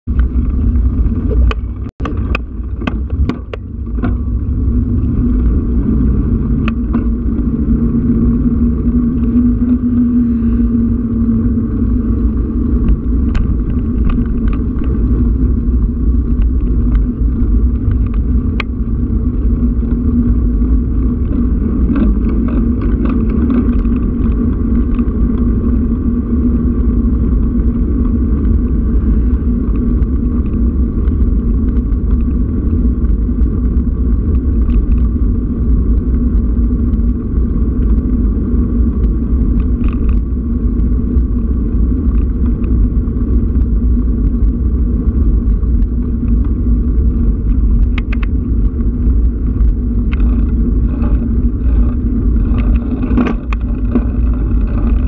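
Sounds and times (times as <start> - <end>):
wind and road noise rumble: 0.0 - 55.0
sharp clicks and knocks: 0.1 - 4.4, 47.4 - 48.8, 49.5 - 55.0.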